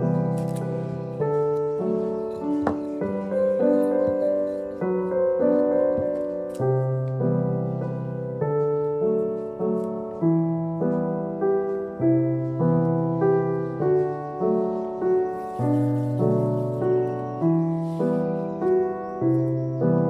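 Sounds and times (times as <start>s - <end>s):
gentle piano music: 0.0s - 20.0s.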